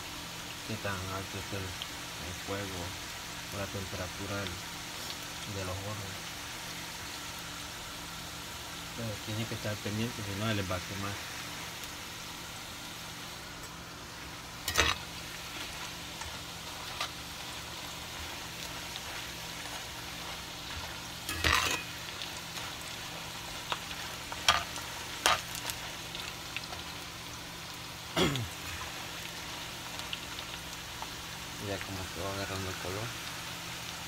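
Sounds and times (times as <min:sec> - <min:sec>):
banana slices sizzling in oil: 0:00.0 - 0:34.0
metal skimmer scraping a pan: 0:14.6 - 0:17.2, 0:20.7 - 0:22.0, 0:24.3 - 0:25.8.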